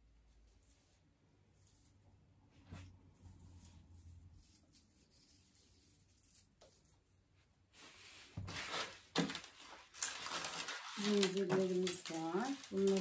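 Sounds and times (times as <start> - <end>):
chain garland rustling and clicking: 9.1 - 13.0.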